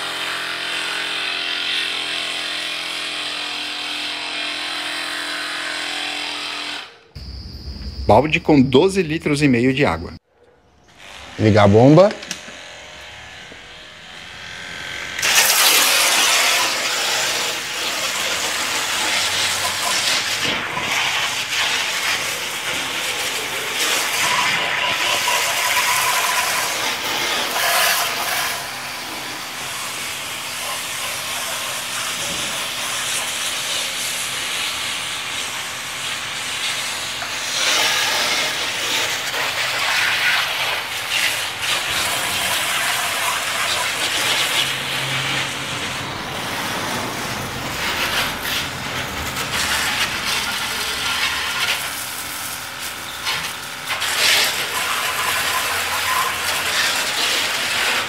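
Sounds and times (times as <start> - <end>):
water jet spraying: 15.2 - 58.0.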